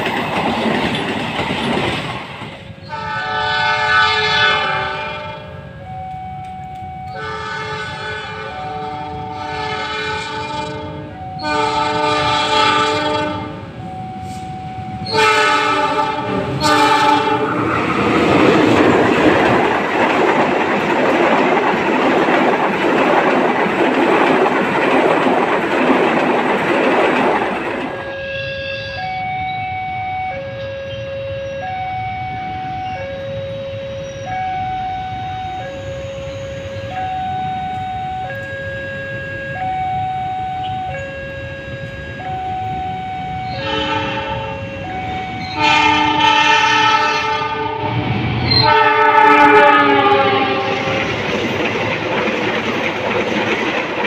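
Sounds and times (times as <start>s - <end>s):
train wheels clattering on rails: 0.0s - 2.8s, 14.2s - 28.1s, 48.2s - 54.0s
two-tone crossing alarm: 2.7s - 53.8s
train horn blasts: 2.8s - 5.9s, 7.0s - 18.4s, 27.9s - 51.3s.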